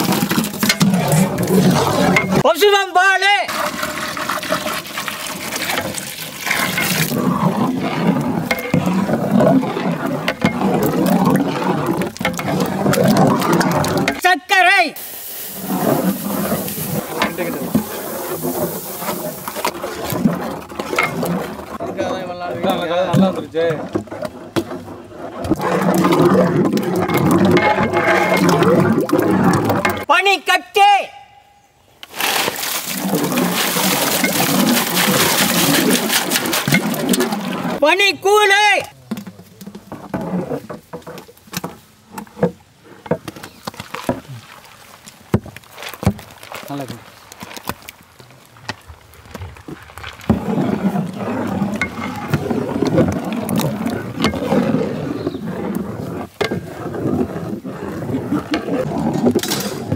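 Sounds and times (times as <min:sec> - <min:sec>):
ice cream squelching and plopping: 0:03.5 - 0:14.2, 0:32.1 - 0:37.8
sugar pouring into pot: 0:15.0 - 0:19.7.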